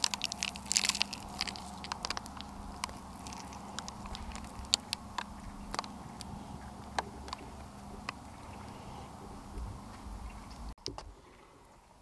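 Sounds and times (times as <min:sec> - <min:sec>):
seeds falling in light ticks: 0:00.0 - 0:06.3.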